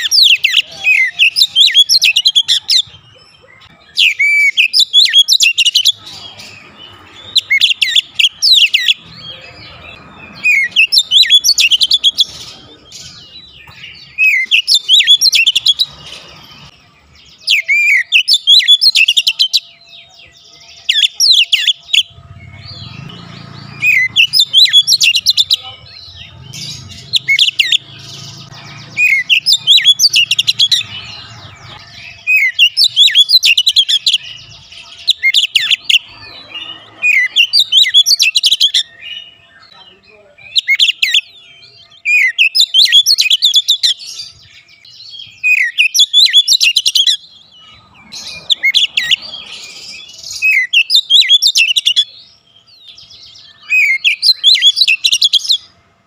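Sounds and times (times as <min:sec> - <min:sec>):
bird singing whistled phrases: 0:00.0 - 0:02.9, 0:14.0 - 0:15.9, 0:17.4 - 0:19.8, 0:40.4 - 0:41.4, 0:45.3 - 0:47.2, 0:49.8 - 0:52.1, 0:53.3 - 0:55.6.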